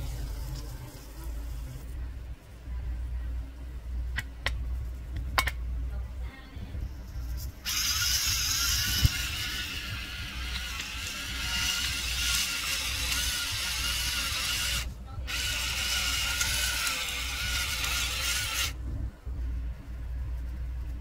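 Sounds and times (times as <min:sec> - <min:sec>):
salt grinder ratcheting: 0:07.6 - 0:18.8.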